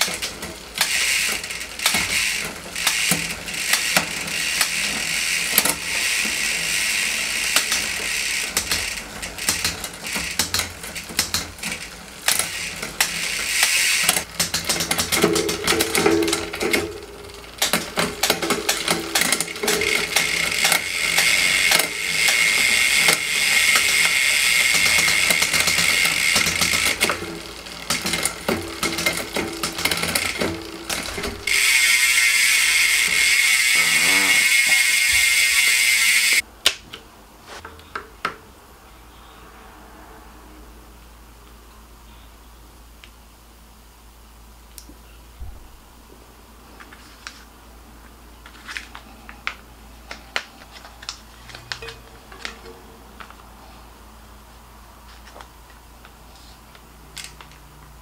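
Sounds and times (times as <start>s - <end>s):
bike chain running over cassette: 0.0s - 36.4s
freehub ratcheting clicks: 0.0s - 36.4s.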